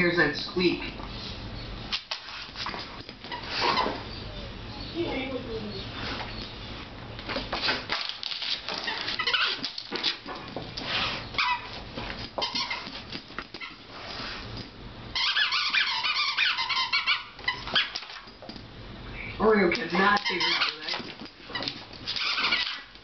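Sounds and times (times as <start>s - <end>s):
squeaky dog toy squeaking: 8.8s - 9.7s, 12.4s - 12.9s, 15.1s - 18.2s, 19.9s - 22.9s.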